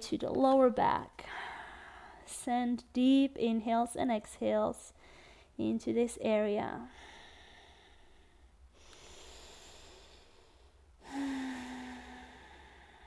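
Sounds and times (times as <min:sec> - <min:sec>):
woman breathing deeply: 0:01.2 - 0:02.2, 0:05.0 - 0:05.6, 0:06.9 - 0:13.0.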